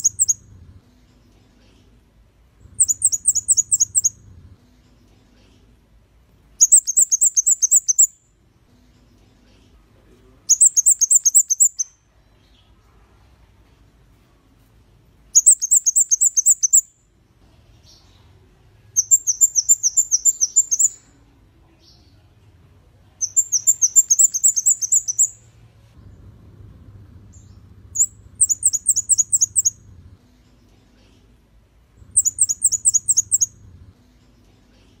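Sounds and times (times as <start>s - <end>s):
bird singing high thin notes: 2.8s - 4.2s, 23.2s - 25.4s, 28.0s - 29.8s, 32.2s - 33.6s.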